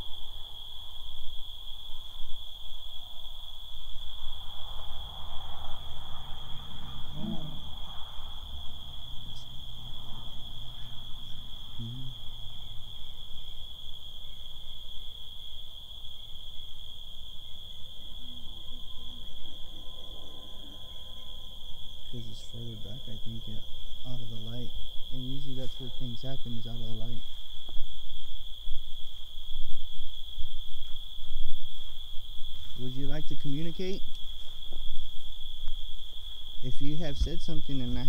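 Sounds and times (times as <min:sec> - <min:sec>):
crickets chirping: 0:00.0 - 0:38.0
faint low rumble: 0:04.1 - 0:13.6.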